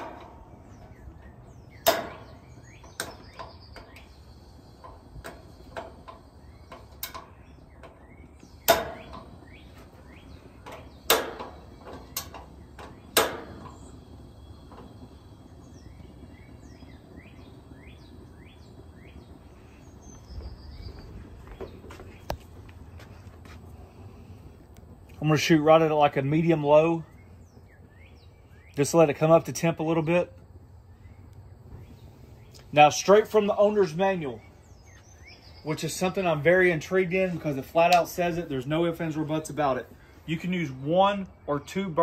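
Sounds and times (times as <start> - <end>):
gas burner igniter clicks: 0.0 - 19.3
birds chirping: 0.0 - 42.0.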